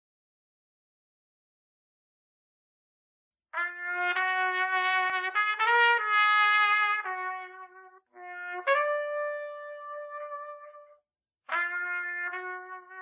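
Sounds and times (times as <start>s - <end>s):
trumpet playing held notes: 3.6s - 10.9s, 11.5s - 13.0s.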